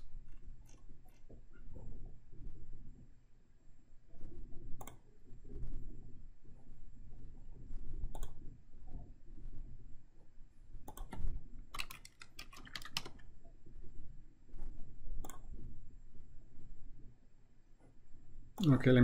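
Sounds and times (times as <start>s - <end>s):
low background hum: 0.0s - 19.0s
computer keyboard typing: 10.9s - 13.3s.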